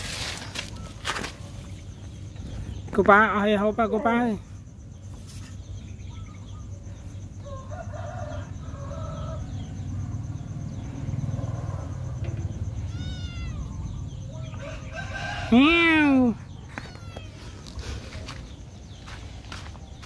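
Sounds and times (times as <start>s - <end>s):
faint rooster crowing: 7.1s - 10.2s, 13.0s - 17.5s
kitten mewing: 12.8s - 13.9s, 16.8s - 17.6s.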